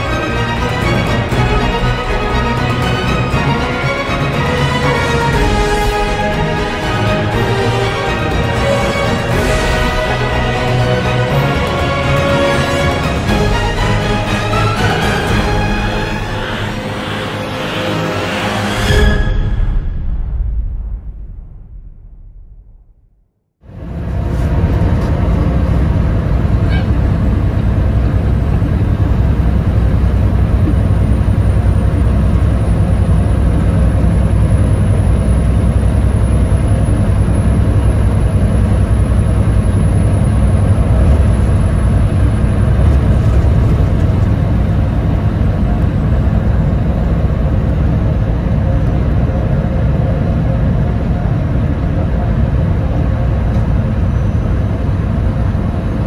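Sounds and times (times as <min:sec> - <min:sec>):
truck diesel engine drone: 0:00.0 - 0:19.3, 0:23.7 - 0:56.0
road noise: 0:23.6 - 0:56.0.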